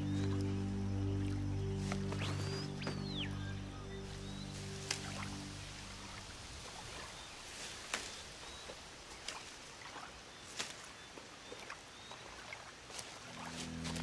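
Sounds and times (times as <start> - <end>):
leaves snapping off plant: 7.9 - 8.2.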